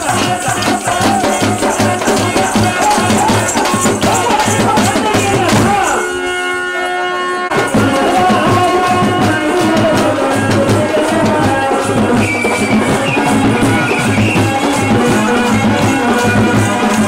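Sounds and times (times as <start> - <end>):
drums and percussive beat: 0.0 - 6.2, 7.5 - 17.0.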